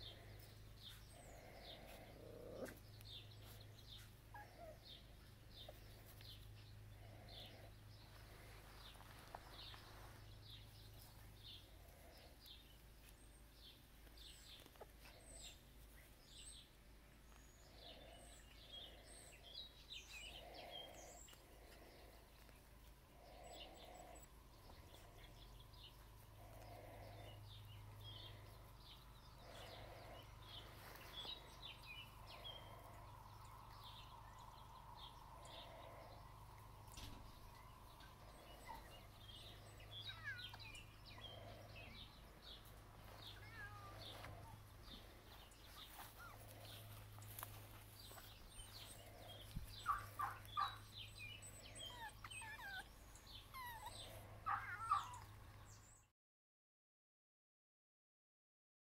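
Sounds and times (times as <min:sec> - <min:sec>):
small bird chirps: 0:36.9 - 0:44.6, 0:45.3 - 0:56.0.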